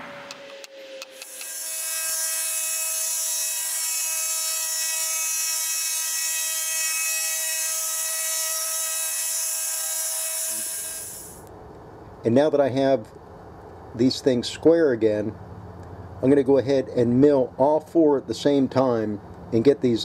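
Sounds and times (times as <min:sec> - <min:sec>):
milling machine cutting metal: 0:01.0 - 0:11.4.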